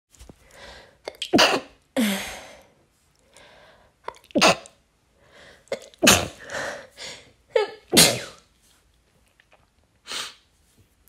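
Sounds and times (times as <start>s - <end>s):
woman sneezing: 6.0s - 6.4s, 7.6s - 8.4s.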